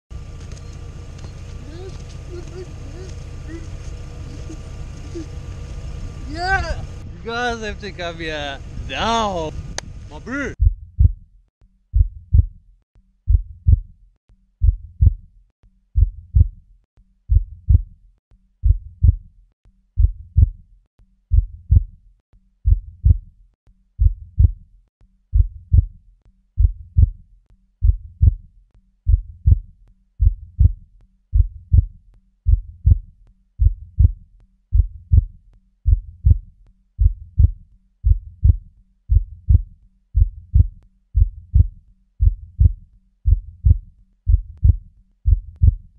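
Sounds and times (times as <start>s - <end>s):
heartbeat thumps: 9.6s - 11.3s, 11.9s - 12.6s, 13.3s - 13.9s, 14.6s - 15.3s, 16.0s - 16.6s, 17.3s - 17.9s, 18.6s - 19.3s, 20.0s - 20.6s, 21.3s - 22.0s, 22.6s - 23.3s, 24.0s - 24.6s, 25.3s - 26.0s, 26.6s - 27.2s, 27.8s - 28.5s, 29.1s - 45.9s.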